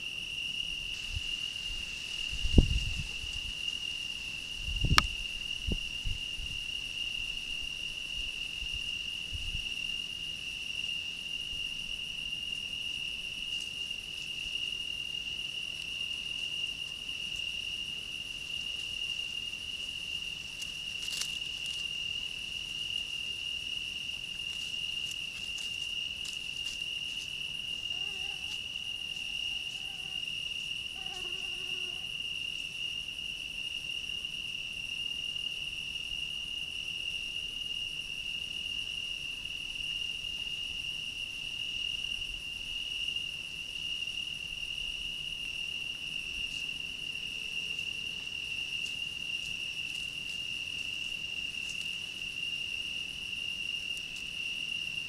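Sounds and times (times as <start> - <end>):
cricket trilling: 0.0 - 55.0
faint ticks and rustles: 12.5 - 32.8, 45.4 - 55.0.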